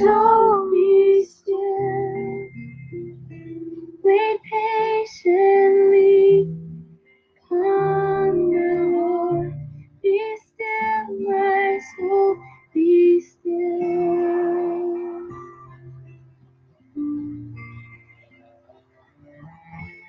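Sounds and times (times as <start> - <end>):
woman singing a worship song: 0.0 - 2.5, 4.0 - 6.6, 7.5 - 15.4
soft musical backing: 0.0 - 20.0.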